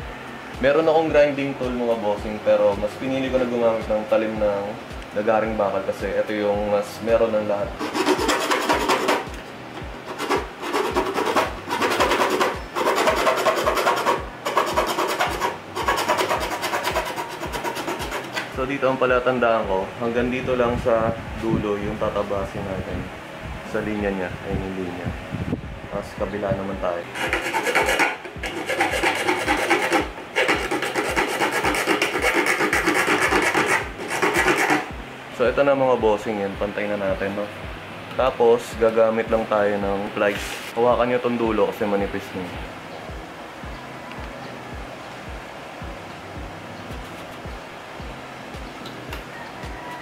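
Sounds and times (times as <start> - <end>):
hacksaw cutting plastic: 7.8 - 9.4, 10.1 - 18.5, 27.1 - 34.9.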